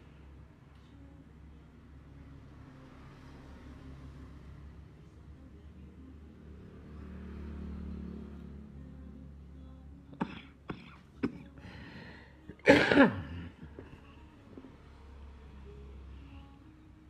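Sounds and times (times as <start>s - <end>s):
person coughing: 10.2s - 11.5s, 12.5s - 13.9s.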